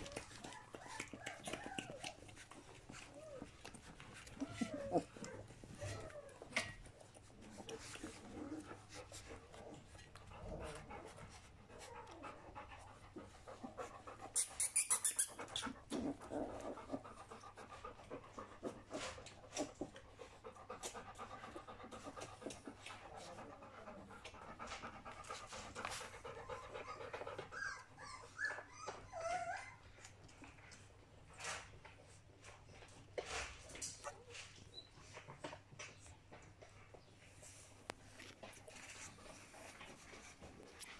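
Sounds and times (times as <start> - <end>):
dog panting: 0.0 - 29.6, 30.2 - 40.9
puppies snuffling and sucking: 0.0 - 40.9
puppies squeaking: 14.2 - 16.1, 26.5 - 29.9.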